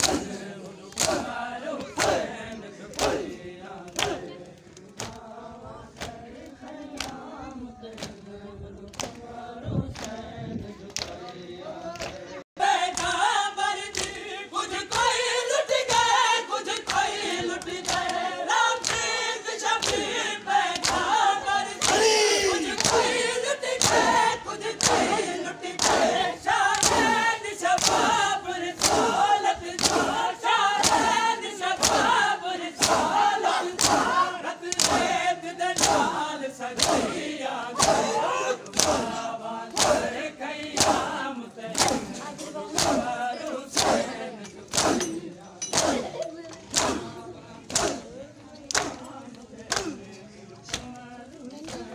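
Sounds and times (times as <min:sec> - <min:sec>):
hands slapping chests: 0:00.0 - 0:00.3, 0:00.9 - 0:02.2, 0:02.9 - 0:05.2, 0:20.8 - 0:21.1, 0:29.8 - 0:30.2, 0:30.8 - 0:31.2, 0:33.7 - 0:35.1, 0:37.8 - 0:40.0, 0:40.8 - 0:41.1, 0:41.7 - 0:42.1, 0:47.7 - 0:48.0
men chanting together: 0:00.0 - 0:51.9.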